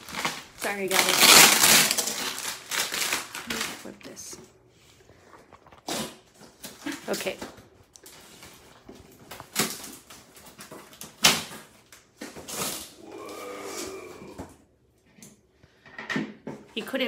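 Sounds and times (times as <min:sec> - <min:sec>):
packing tape ripping off box: 0:00.0 - 0:04.0, 0:05.7 - 0:07.1, 0:09.2 - 0:13.0
plastic wrap handling: 0:00.0 - 0:14.1.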